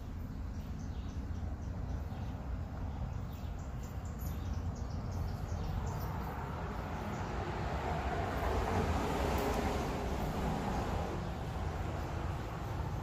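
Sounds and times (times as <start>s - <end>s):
small birds chirping: 0.0s - 7.7s
vehicle passing: 1.4s - 13.0s.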